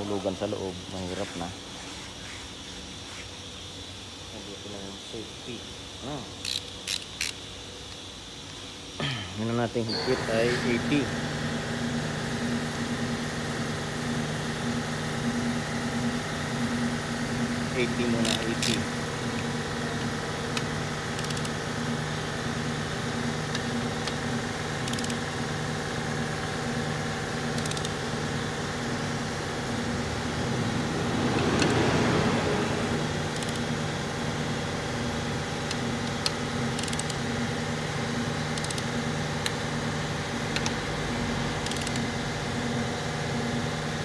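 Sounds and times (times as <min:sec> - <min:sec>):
machinery hum: 0:00.0 - 0:44.0
torque wrench clicks: 0:06.4 - 0:08.0, 0:18.2 - 0:19.5, 0:20.5 - 0:21.6, 0:24.8 - 0:25.2, 0:27.5 - 0:28.0, 0:33.3 - 0:33.7, 0:35.6 - 0:37.2, 0:38.5 - 0:39.6, 0:41.6 - 0:42.1.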